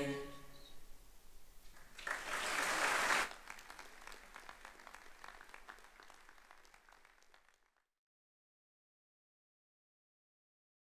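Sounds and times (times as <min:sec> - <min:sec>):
audience applauding: 0:01.7 - 0:07.9.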